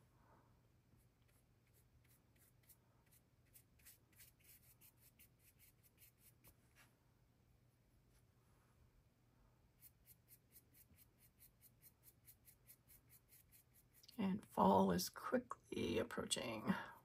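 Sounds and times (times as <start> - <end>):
paintbrush scratching on canvas: 1.0 - 6.9, 9.8 - 14.2.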